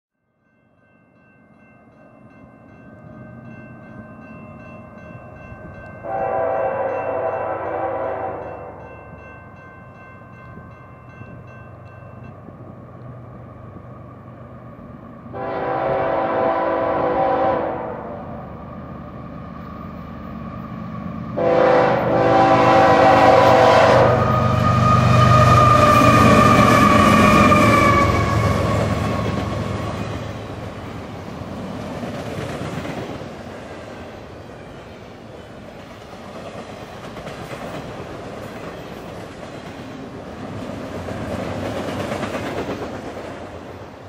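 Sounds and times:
faint crossing bell ringing: 0.2s - 12.6s
locomotive air horn blasts: 6.0s - 8.8s, 15.3s - 18.3s, 21.4s - 24.5s.

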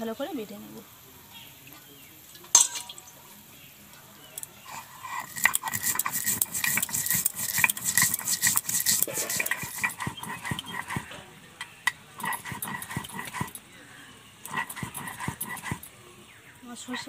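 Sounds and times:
stone pestle grinding on slab: 4.7s - 11.1s, 12.2s - 13.6s, 14.5s - 15.9s.

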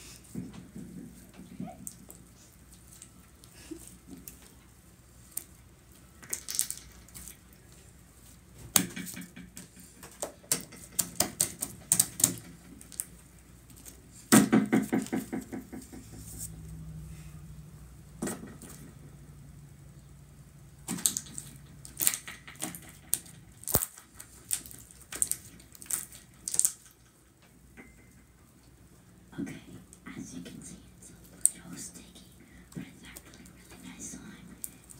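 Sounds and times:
slime clicking and popping: 20.8s - 27.1s.

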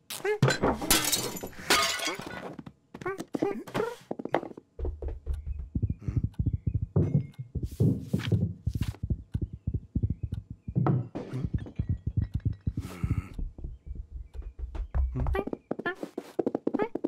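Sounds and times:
cartoon paws thumping: 2.9s - 17.0s.

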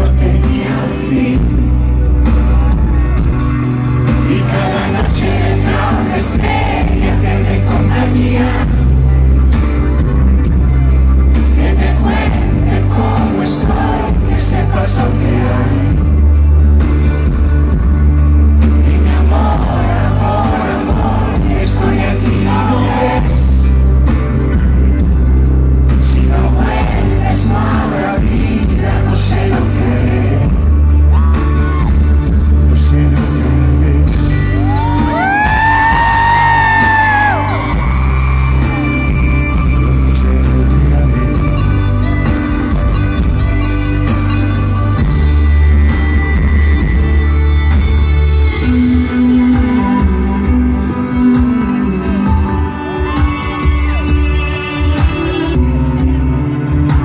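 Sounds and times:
person singing: 0.0s - 3.4s, 4.0s - 9.1s, 11.4s - 16.3s, 18.8s - 23.8s, 25.9s - 41.6s
live rock band playing: 0.0s - 57.0s.

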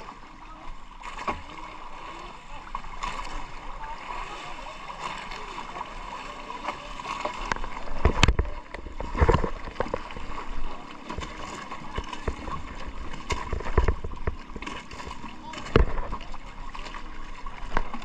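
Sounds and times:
water lapping against boat hull: 0.0s - 18.0s
knocks against boat: 7.4s - 16.5s.

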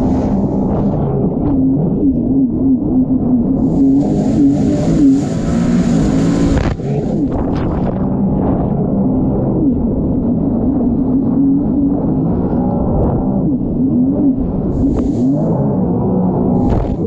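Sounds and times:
engine revving: 0.0s - 2.2s, 3.6s - 9.8s, 11.3s - 17.0s
hiss: 3.6s - 7.0s, 14.8s - 15.4s.

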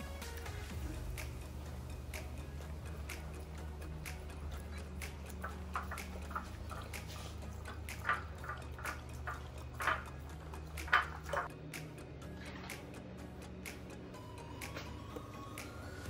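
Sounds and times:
dog licking and lapping: 4.5s - 9.7s.

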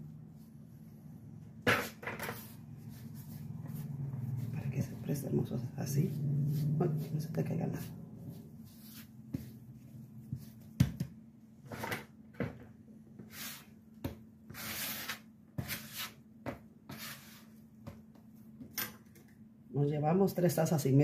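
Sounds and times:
hands kneading dough: 2.4s - 11.2s.

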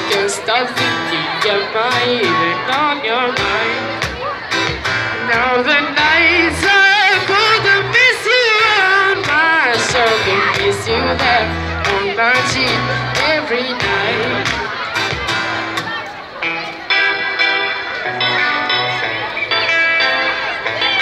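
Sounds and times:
guitar: 0.0s - 21.0s
singer's wordless vocal runs: 5.0s - 14.7s.

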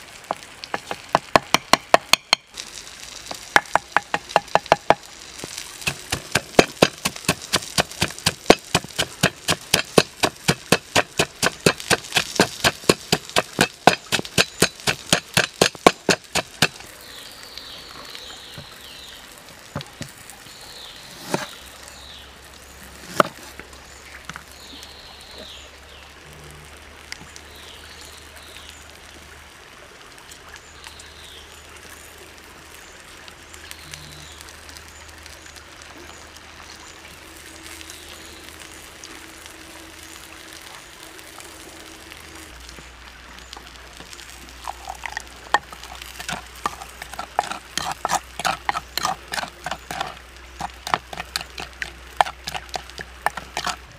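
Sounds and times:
pestle pounding in wooden mortar: 0.7s - 2.4s, 3.6s - 5.0s, 5.8s - 16.8s, 44.7s - 53.8s.

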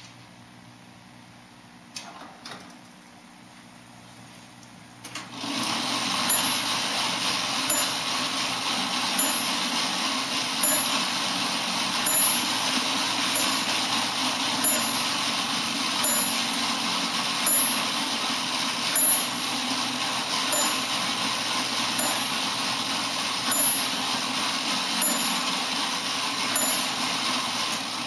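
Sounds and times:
small electric motor whirring: 5.4s - 27.8s
small bell ringing: 6.3s - 6.6s, 7.7s - 8.0s, 9.2s - 9.6s, 10.6s - 11.0s, 12.0s - 12.6s, 13.4s - 13.7s, 14.6s - 15.1s, 16.0s - 16.5s, 17.4s - 17.9s, 19.0s - 19.4s, 20.5s - 20.9s, 22.0s - 22.3s, 23.5s - 23.9s, 25.0s - 25.5s, 26.6s - 27.0s.

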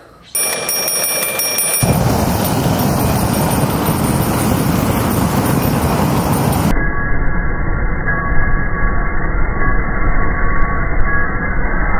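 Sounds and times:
toy ringing bell-like tone: 0.4s - 6.8s
flamethrower roaring: 1.8s - 6.7s.

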